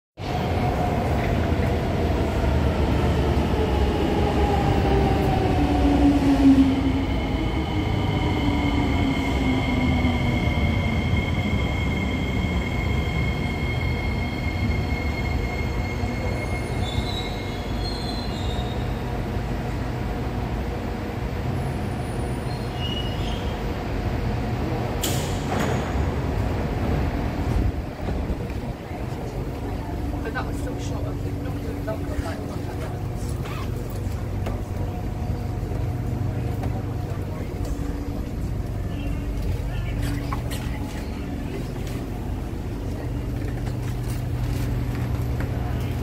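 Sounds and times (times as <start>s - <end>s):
train rumble: 0.2s - 46.0s
wheels and brakes squealing: 7.1s - 19.1s, 21.6s - 23.7s, 33.2s - 33.9s.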